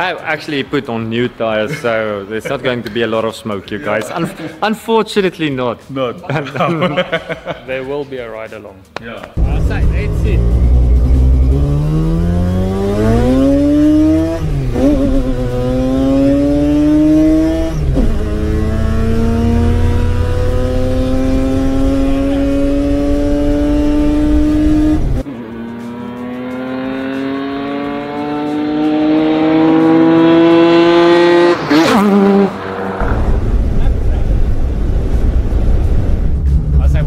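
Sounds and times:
car engine accelerating hard: 0:09.4 - 0:34.7.

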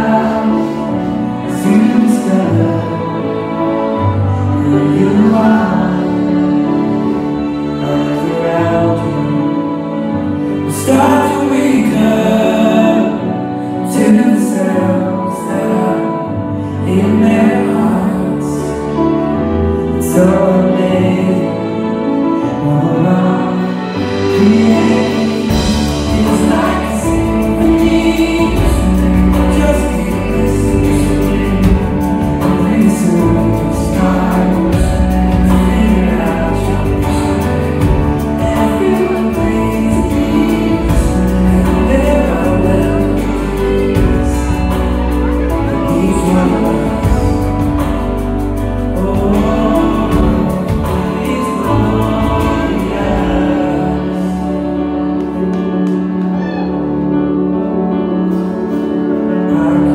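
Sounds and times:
instrumental accompaniment: 0:00.0 - 0:59.9
man singing into a microphone: 0:00.0 - 0:59.9.

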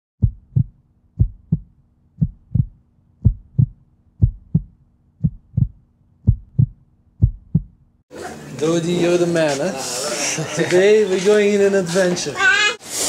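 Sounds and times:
heartbeat thumps: 0:00.2 - 0:07.9.

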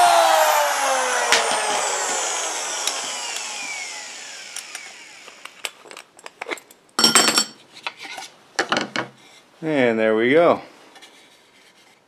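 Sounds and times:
power drill motor winding down: 0:00.0 - 0:05.9.

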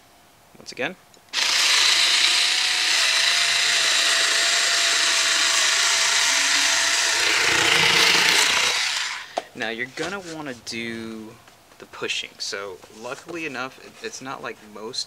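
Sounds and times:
rotary cutter motor whine: 0:01.3 - 0:09.3
blade cutting cardboard: 0:01.4 - 0:09.3.

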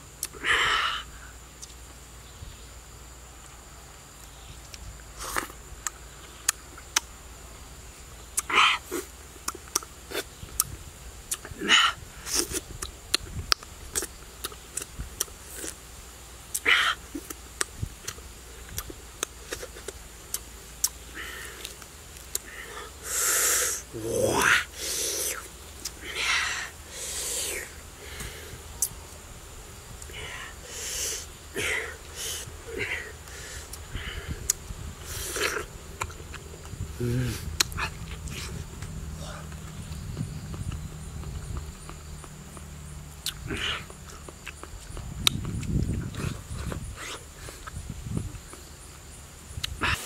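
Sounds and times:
high insect drone: 0:00.0 - 0:50.0
lip smacks: 0:04.2 - 0:07.1, 0:08.4 - 0:11.5, 0:12.3 - 0:15.8, 0:16.5 - 0:22.9, 0:24.9 - 0:26.2, 0:27.0 - 0:29.0, 0:33.3 - 0:36.8, 0:37.4 - 0:48.6
mouth clicks: 0:04.2 - 0:07.1, 0:08.3 - 0:15.8, 0:16.5 - 0:29.0, 0:30.0 - 0:48.6, 0:49.5 - 0:50.0
person slurping: 0:21.1 - 0:28.9, 0:30.0 - 0:36.2, 0:37.0 - 0:39.6
loud breathy rush: 0:22.4 - 0:29.0, 0:30.0 - 0:35.8, 0:36.9 - 0:39.9
short falling vocal sound: 0:23.7 - 0:25.4, 0:37.0 - 0:38.6
wet lip smacks: 0:25.3 - 0:26.0, 0:37.5 - 0:38.9.

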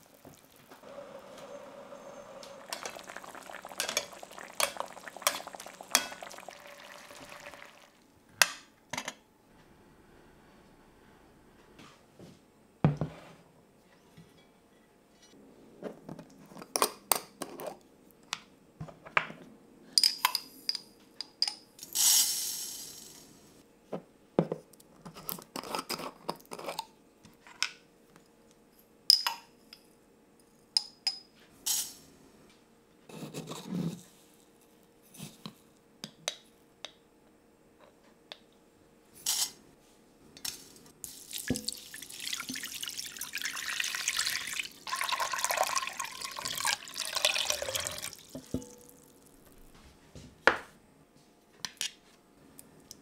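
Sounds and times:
rattling pour: 0:00.0 - 0:08.0, 0:41.0 - 0:49.4
water pouring into pot: 0:00.0 - 0:08.0, 0:41.0 - 0:49.4.

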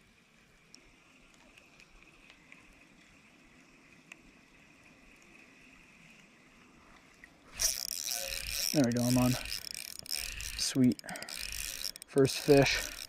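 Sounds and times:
soft ticks: 0:00.7 - 0:03.1, 0:03.9 - 0:04.3, 0:06.9 - 0:13.0
high-pitched hum: 0:07.6 - 0:13.0.

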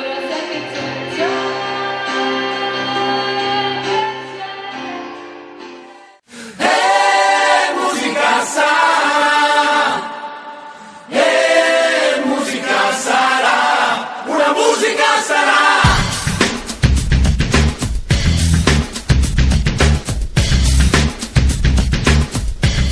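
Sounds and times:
theme music with group singing: 0:05.7 - 0:17.2
backing track: 0:15.7 - 0:22.9.

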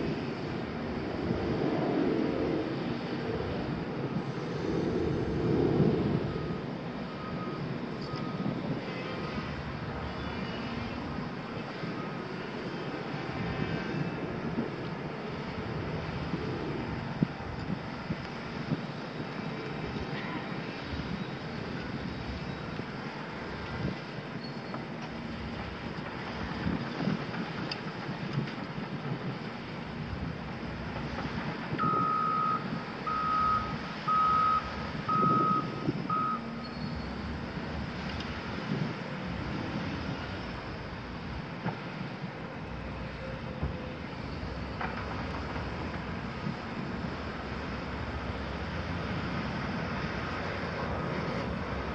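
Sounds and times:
heavy machinery diesel engines: 0:00.0 - 0:51.9
reversing alarm beeps: 0:06.2 - 0:08.5, 0:31.8 - 0:37.2.

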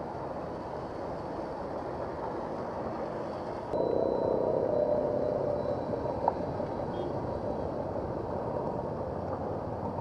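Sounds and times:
electric locomotive rumbling: 0:03.2 - 0:09.6.

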